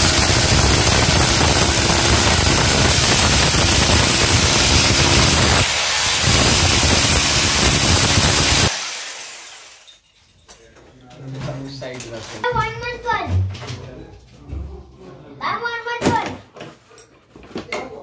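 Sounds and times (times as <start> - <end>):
power drill boring through masonry: 0.0 - 10.0.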